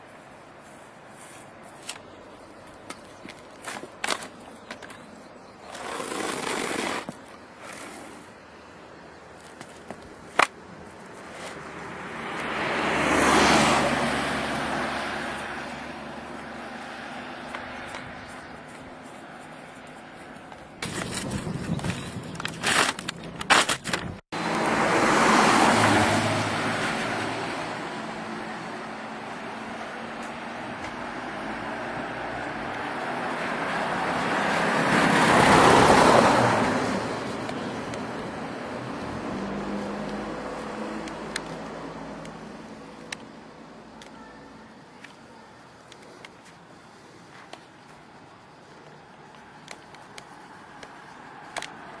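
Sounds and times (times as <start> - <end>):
car passing: 11.2 - 19.4, 24.4 - 43.7, 48.1 - 52.0
car driving past: 11.9 - 17.4, 24.4 - 28.3.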